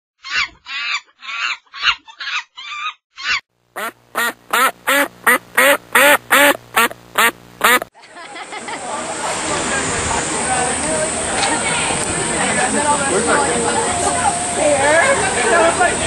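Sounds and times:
duck quacking: 3.8 - 7.9.

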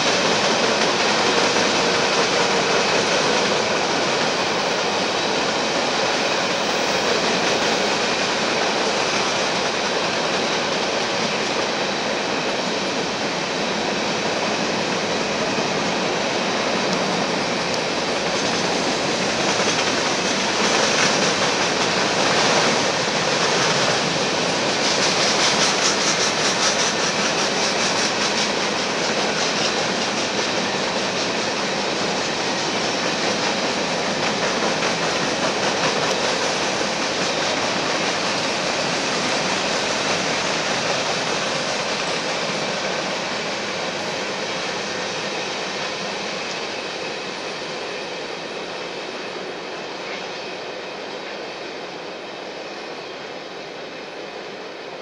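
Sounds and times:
train wheels on track: 0.0 - 55.0.

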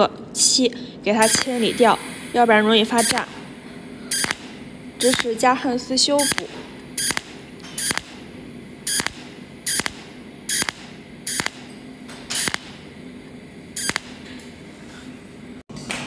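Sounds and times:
faint steady hum: 0.0 - 15.6
welder arc pulses buzzing: 1.1 - 14.7.

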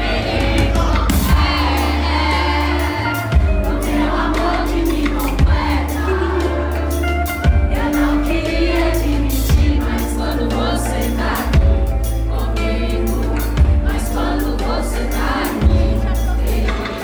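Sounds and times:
drum hits: 0.0 - 2.1
crowd singing along: 0.0 - 17.0
heavy bass: 0.0 - 17.0.

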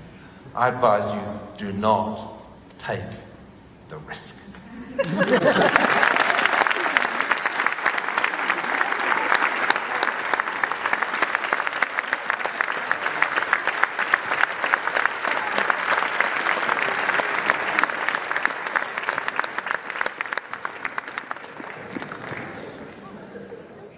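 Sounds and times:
audience applauding: 5.0 - 23.6.

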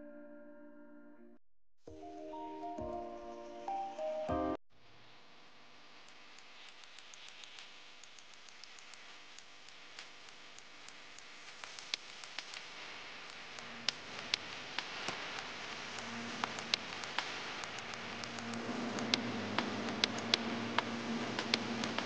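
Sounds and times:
steady hiss: 5.8 - 22.0
sharp clicks: 6.0 - 22.0.

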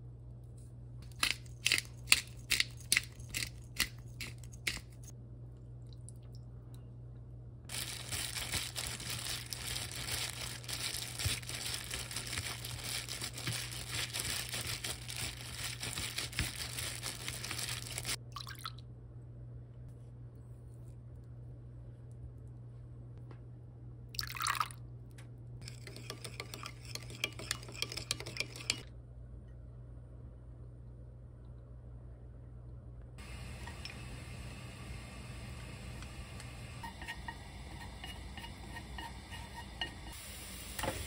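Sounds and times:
steady low hum: 0.0 - 41.0
plastic glove crinkling: 7.7 - 18.2.

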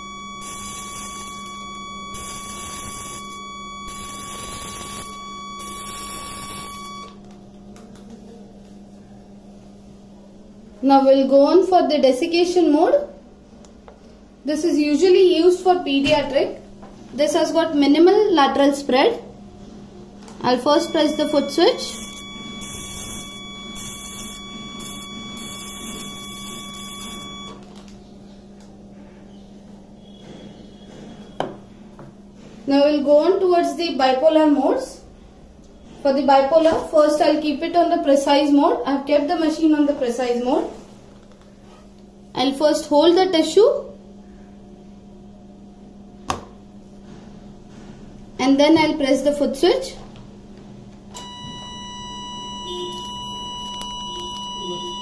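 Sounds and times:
high activation beep: 0.0 - 7.2, 20.5 - 27.6, 51.2 - 55.0
low steady hum: 0.0 - 29.5, 50.5 - 55.0
hissing crackle of sparks: 0.4 - 7.0, 21.1 - 27.6.

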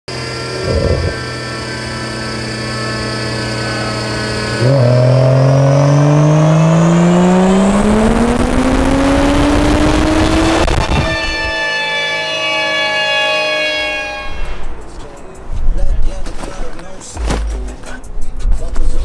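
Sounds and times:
engine revving at full throttle: 0.1 - 11.5
car engine on dyno: 0.1 - 14.5.

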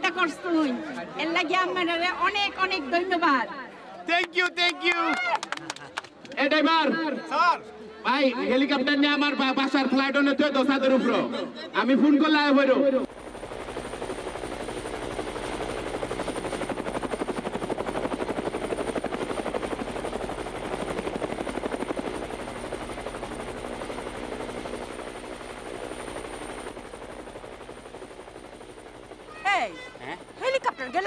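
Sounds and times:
helicopter rotor chopping: 13.0 - 31.0.

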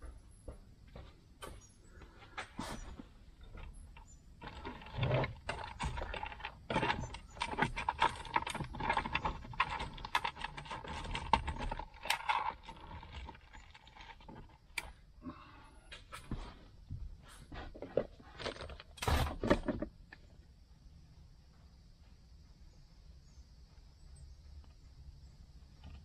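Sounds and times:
small hard parts clicking and rattling: 3.4 - 16.4.

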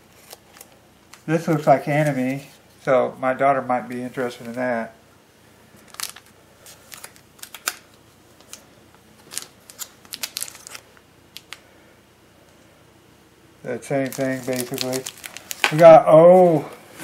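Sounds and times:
foil wrapper crinkling: 0.1 - 2.9, 5.8 - 11.6, 13.8 - 16.8.

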